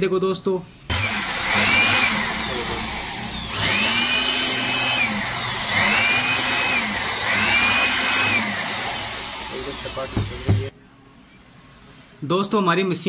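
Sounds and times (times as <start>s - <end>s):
electric air blower whining: 0.9s - 10.7s.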